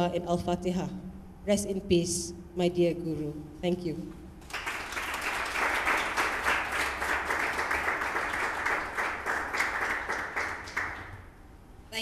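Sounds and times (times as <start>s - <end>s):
audience applauding: 4.4s - 11.2s.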